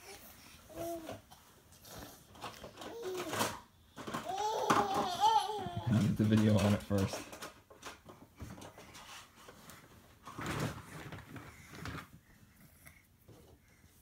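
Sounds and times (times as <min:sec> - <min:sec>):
soft bumps and rustles of toys: 0:00.0 - 0:14.0.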